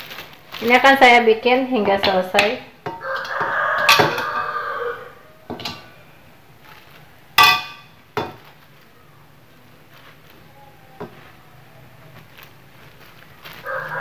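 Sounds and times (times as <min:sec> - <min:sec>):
metal wok clanking: 0:01.7 - 0:04.6, 0:05.5 - 0:06.0, 0:07.4 - 0:08.5.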